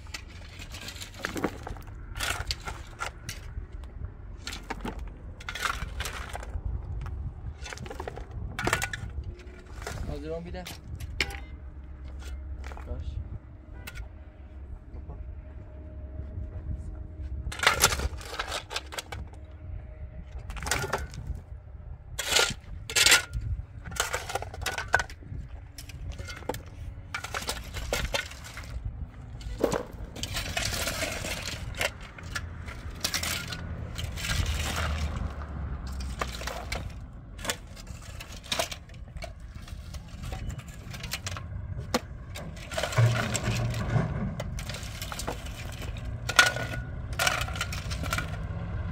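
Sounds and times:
shovel scraping through gravel: 0:00.0 - 0:03.5, 0:25.8 - 0:41.4, 0:42.0 - 0:48.5
stones clattering into metal wheelbarrow: 0:00.0 - 0:03.6, 0:04.4 - 0:13.0, 0:17.5 - 0:19.4, 0:20.4 - 0:21.4, 0:22.2 - 0:48.6.

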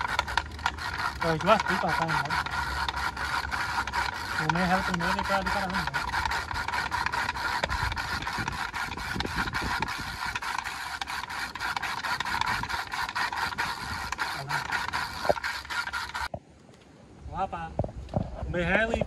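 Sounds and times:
reel clicking: 0:00.0 - 0:16.3.

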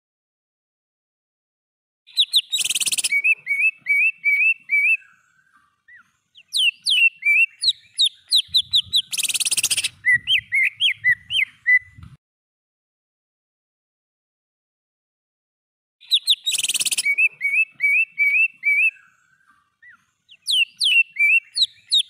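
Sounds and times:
bird singing whistled notes: 0:02.1 - 0:12.1, 0:16.0 - 0:22.0.

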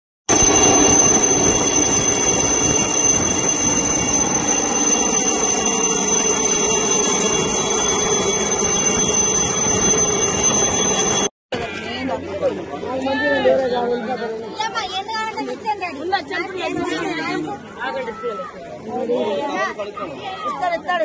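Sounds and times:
helicopter hovering overhead: 0:00.3 - 0:11.3.

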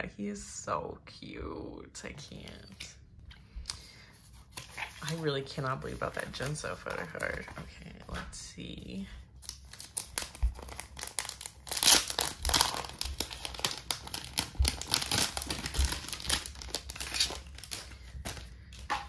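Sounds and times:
plastic sleeve crinkling: 0:04.2 - 0:19.0.

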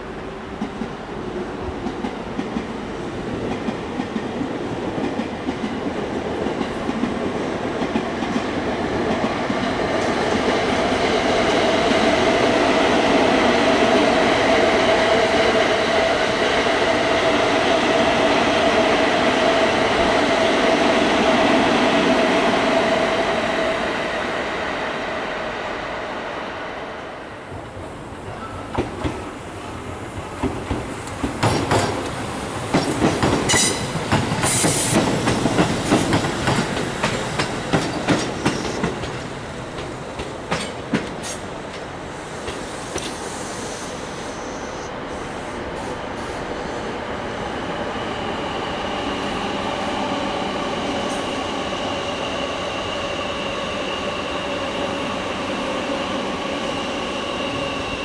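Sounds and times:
electric train passing: 0:00.0 - 0:58.0.

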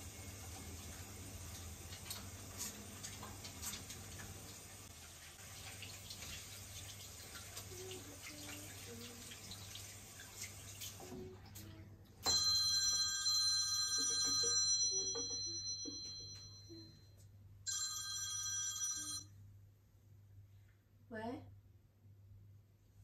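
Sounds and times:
water running from tap: 0:00.0 - 0:11.7
mobile phone ringing: 0:12.3 - 0:17.0, 0:17.7 - 0:19.3.

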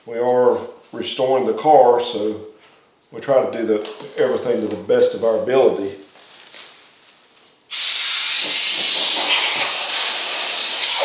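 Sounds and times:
compressed air hissing from air gun: 0:07.7 - 0:11.0.

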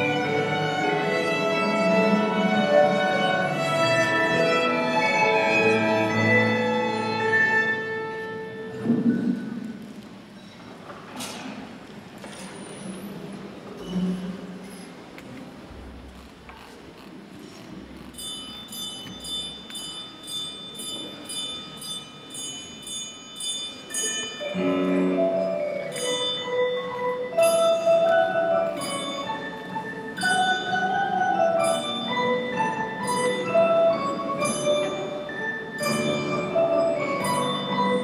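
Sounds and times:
instrumental ensemble playing: 0:00.0 - 0:08.8, 0:24.5 - 0:38.0.

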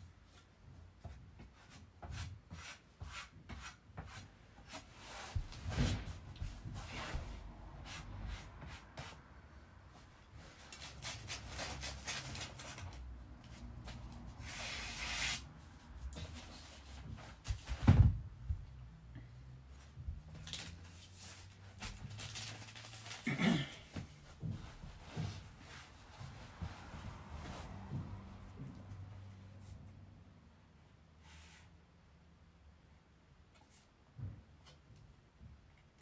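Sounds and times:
dull thump: 0:17.6 - 0:18.7
paper rustling: 0:20.3 - 0:23.3.

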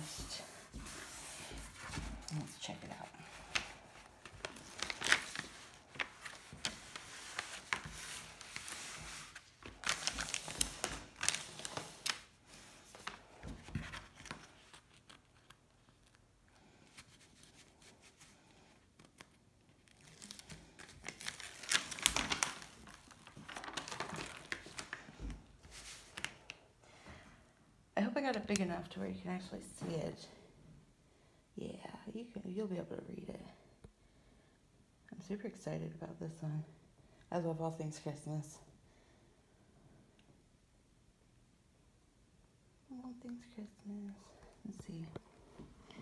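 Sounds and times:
plastic film crinkling: 0:00.1 - 0:26.6.

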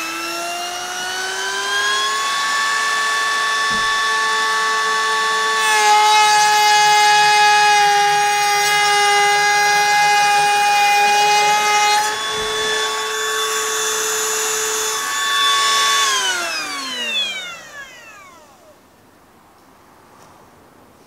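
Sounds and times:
motor spinning down: 0:00.0 - 0:05.6, 0:09.6 - 0:18.8
router whining while cutting wood: 0:00.0 - 0:18.8.

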